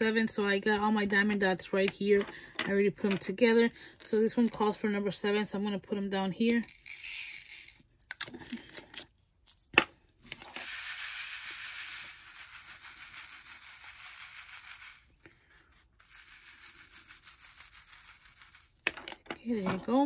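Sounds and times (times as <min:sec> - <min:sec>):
plastic beads rattling into a tray: 0:06.4 - 0:08.5, 0:10.3 - 0:19.2.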